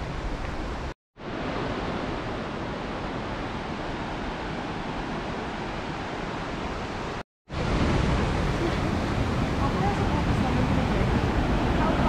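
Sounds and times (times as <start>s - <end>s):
creek water rushing: 0.0s - 12.0s.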